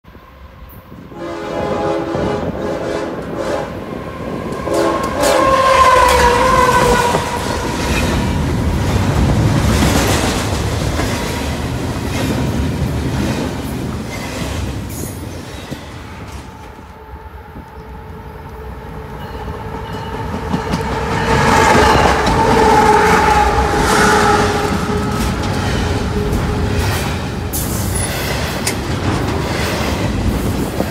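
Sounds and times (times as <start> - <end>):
train horn: 0.7 - 8.4, 16.5 - 28.0
freight cars rumbling past: 18.7 - 30.9.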